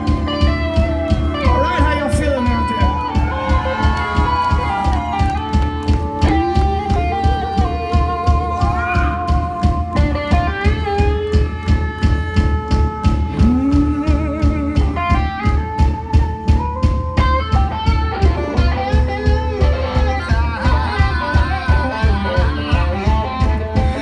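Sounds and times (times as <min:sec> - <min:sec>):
bass guitar: 0:00.0 - 0:24.0
electric guitar long notes: 0:00.0 - 0:24.0
steady drum beat: 0:00.0 - 0:24.0.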